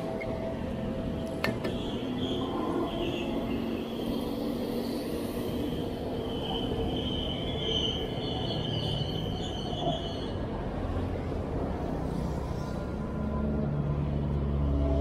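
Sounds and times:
train wheels squealing: 0.0 - 0.7, 1.5 - 10.6, 12.0 - 13.4
train rumbling on rails: 0.0 - 15.0.

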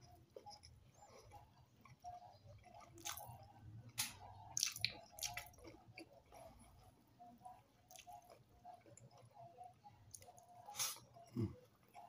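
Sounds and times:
person chewing wetly: 0.0 - 12.0
lip smacks: 3.9 - 6.1.

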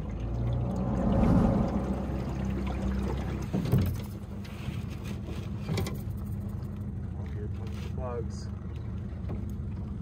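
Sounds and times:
outboard motor humming: 0.0 - 10.0.

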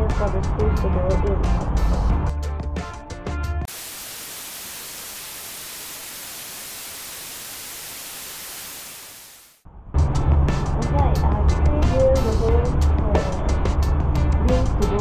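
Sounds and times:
static hiss: 3.7 - 9.6.

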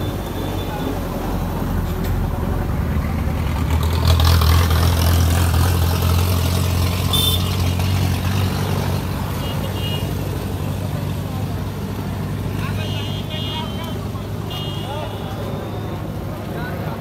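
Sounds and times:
engine humming: 0.0 - 17.0.

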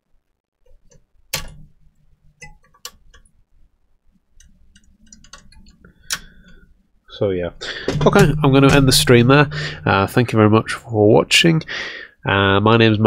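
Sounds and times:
hand tool clicking on laptop: 0.7 - 1.7, 4.4 - 6.6.

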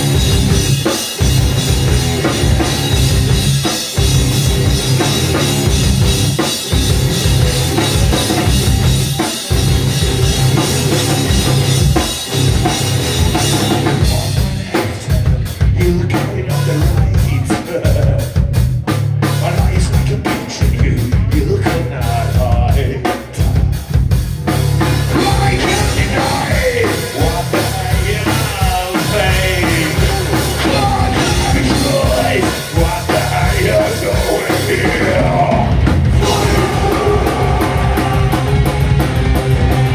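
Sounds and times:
heavy metal band playing: 0.0 - 39.9
person singing: 13.2 - 18.6, 25.1 - 39.1.

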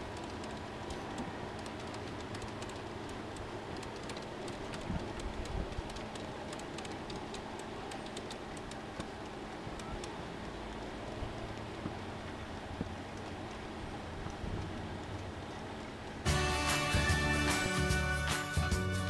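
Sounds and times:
model train wheels clicking: 0.0 - 12.0
steady rushing background: 0.0 - 19.0.

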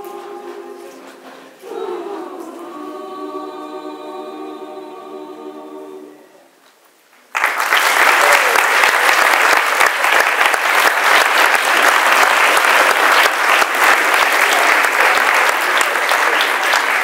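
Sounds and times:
audience applause: 7.3 - 17.0.

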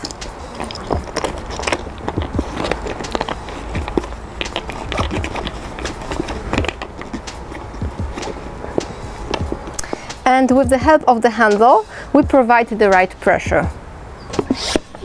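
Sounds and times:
plastic cap clicking and crinkling: 0.0 - 10.2.

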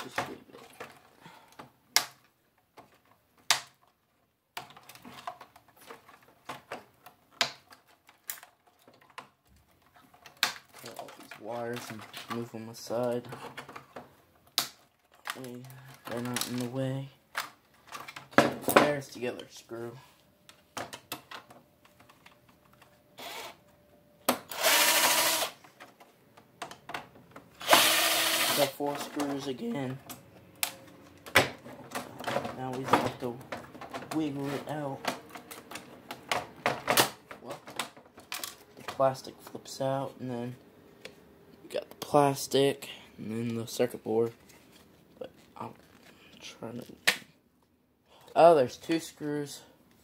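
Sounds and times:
cordless screw gun motor: 23.2 - 23.6, 24.5 - 25.6, 27.6 - 28.7.

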